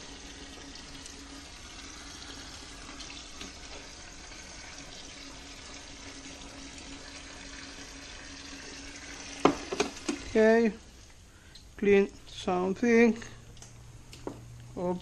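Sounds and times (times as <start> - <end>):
water pouring into sink: 0.0 - 10.5
faint steady hum: 0.0 - 15.0.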